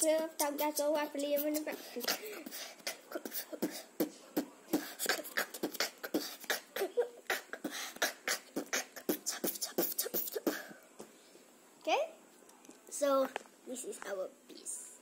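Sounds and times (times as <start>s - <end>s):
boy beatboxing: 0.0s - 10.8s.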